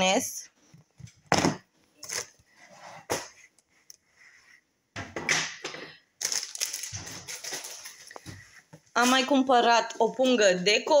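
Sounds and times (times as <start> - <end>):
plastic packaging rustling: 6.2 - 9.3.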